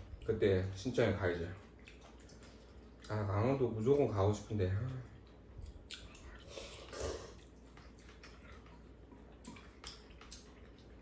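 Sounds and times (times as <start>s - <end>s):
people chewing noodles: 0.0s - 4.0s, 4.9s - 11.0s.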